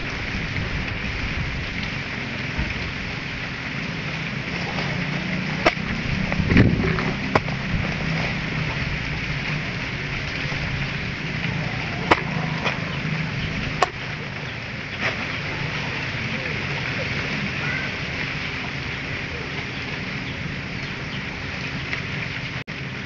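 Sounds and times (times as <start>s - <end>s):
steady outdoor hiss: 0.0s - 23.0s
hoe striking soil: 5.6s - 8.1s.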